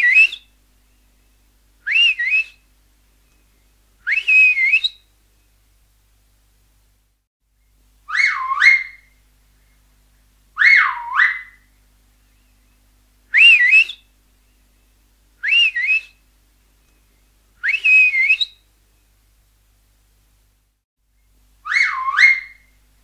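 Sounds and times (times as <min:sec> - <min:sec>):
swooping finger whistles: 0:04.1 - 0:05.0, 0:13.4 - 0:14.0, 0:17.6 - 0:18.6.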